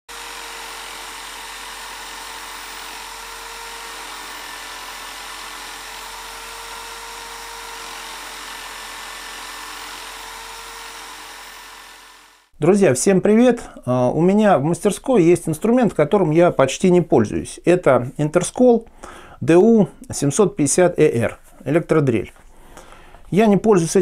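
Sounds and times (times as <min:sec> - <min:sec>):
electric drill whining: 0:00.1 - 0:12.5.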